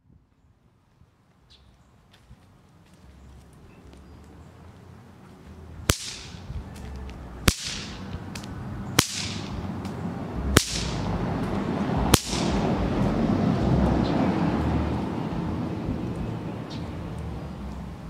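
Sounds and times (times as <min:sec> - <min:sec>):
whip cracks: 0:05.9 - 0:10.0, 0:10.6 - 0:11.2, 0:12.1 - 0:12.7.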